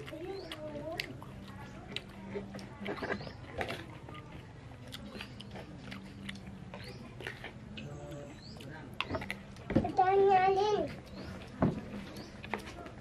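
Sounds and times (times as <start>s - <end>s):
small food crunches: 0.0s - 9.7s
wet chewing: 0.0s - 13.0s.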